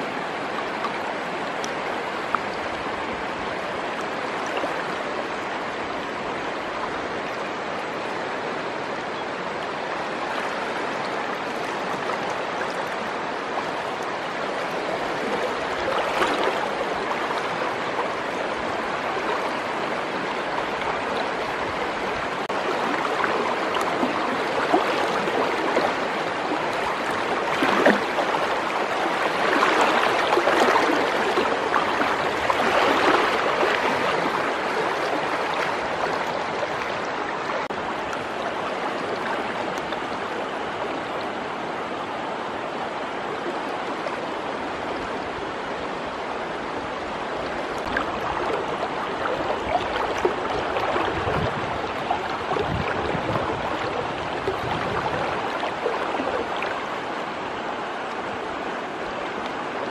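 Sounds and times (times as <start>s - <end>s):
river water rushing: 0.0s - 59.9s
person wading splashes: 22.7s - 36.7s, 47.8s - 56.8s.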